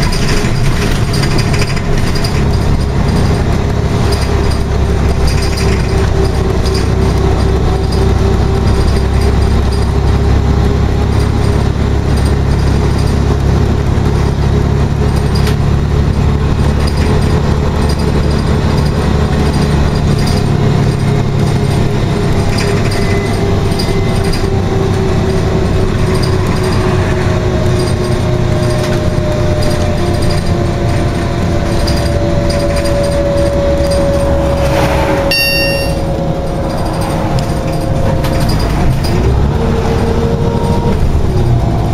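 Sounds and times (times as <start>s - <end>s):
bus engine and road rumble: 0.0s - 41.9s
higher whine falling in pitch: 32.6s - 38.6s
whine falling in pitch: 33.0s - 38.0s.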